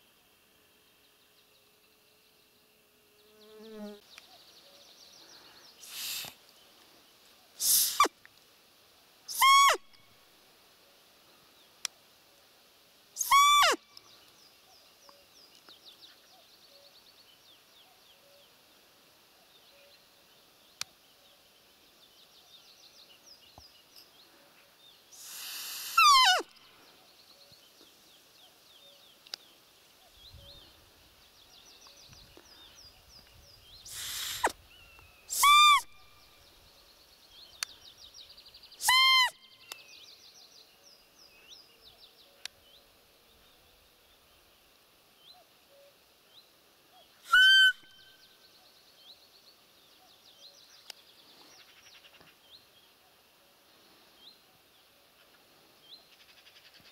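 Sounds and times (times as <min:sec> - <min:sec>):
faint songbird chirping: 0:00.0 - 0:56.9
deer call squeaks: 0:09.3 - 0:09.8, 0:13.2 - 0:13.8, 0:26.0 - 0:26.5, 0:35.3 - 0:35.9, 0:38.8 - 0:39.3, 0:47.3 - 0:47.8.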